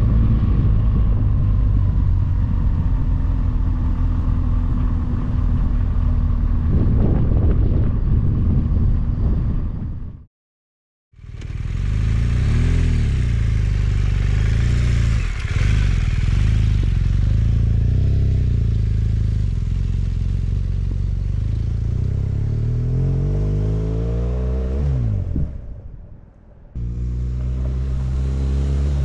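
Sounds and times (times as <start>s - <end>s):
motorcycle engine running: 11.2s - 22.7s, 26.8s - 29.0s.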